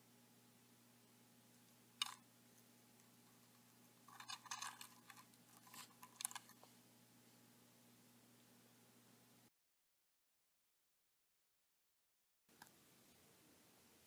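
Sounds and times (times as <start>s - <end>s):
faint steady hum: 0.0s - 9.5s, 12.5s - 14.0s.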